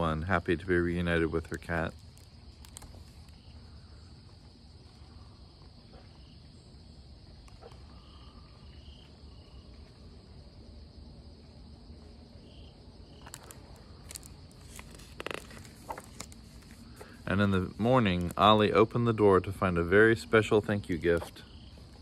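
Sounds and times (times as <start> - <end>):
insect chorus: 0.0 - 22.0
book pages rustling: 1.5 - 3.4, 13.1 - 18.6.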